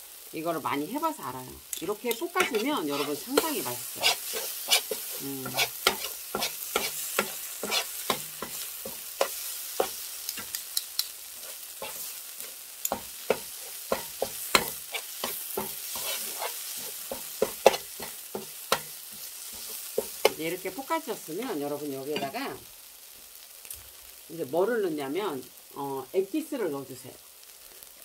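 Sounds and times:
faint sizzle: 0:00.0 - 0:28.0
spatula scraping frying pan: 0:01.8 - 0:20.9, 0:22.1 - 0:22.5.

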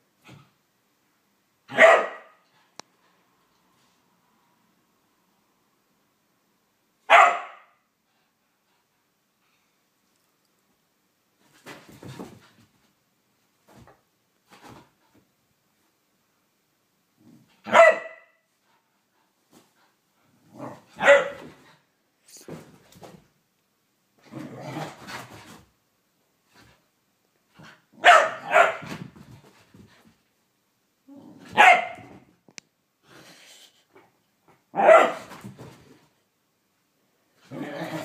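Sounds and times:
dog barking: 0:01.7 - 0:02.4, 0:07.1 - 0:07.8, 0:17.6 - 0:18.4, 0:21.0 - 0:21.4, 0:28.0 - 0:28.9, 0:31.6 - 0:32.1, 0:34.8 - 0:35.3.

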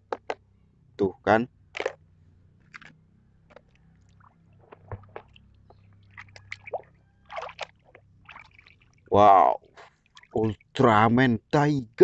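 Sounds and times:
water splashing in a basin: 0:03.5 - 0:09.2, 0:10.0 - 0:10.8.

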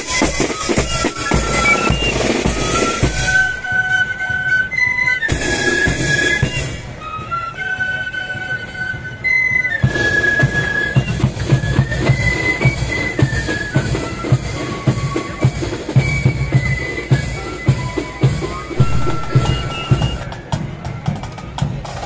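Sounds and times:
marching drums beating: 0:00.0 - 0:04.1, 0:05.3 - 0:07.0, 0:09.8 - 0:22.0
flute band melody: 0:00.0 - 0:22.0.

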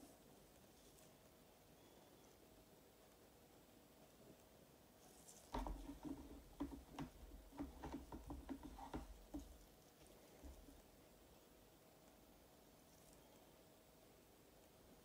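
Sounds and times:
light taps of handled coasters: 0:05.3 - 0:09.7.

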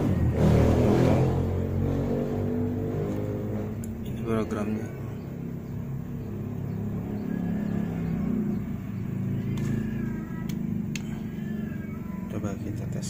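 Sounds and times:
low mechanical hum: 0:03.2 - 0:13.0.

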